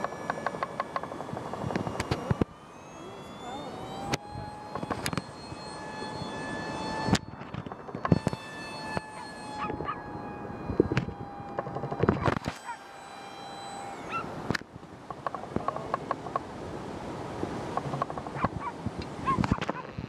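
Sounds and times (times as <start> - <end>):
sharp clicks and knocks: 0.0 - 2.5, 17.7 - 20.0
jet aircraft engine whine: 0.0 - 19.8.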